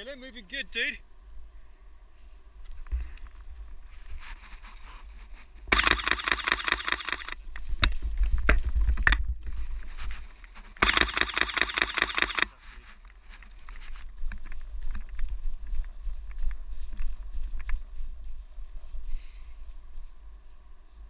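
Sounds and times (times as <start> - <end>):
camera shutter bursts: 5.7 - 7.4, 10.8 - 12.6.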